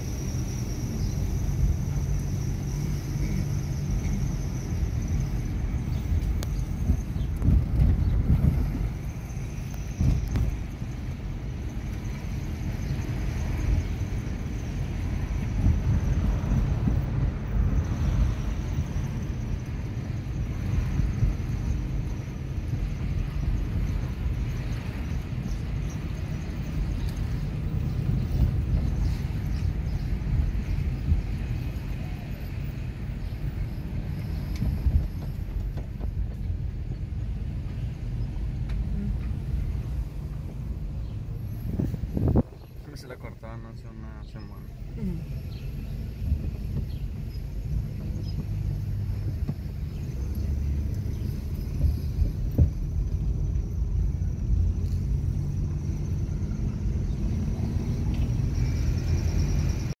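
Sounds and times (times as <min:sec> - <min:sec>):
car engine and tyre rumble: 0:00.0 - 1:00.0.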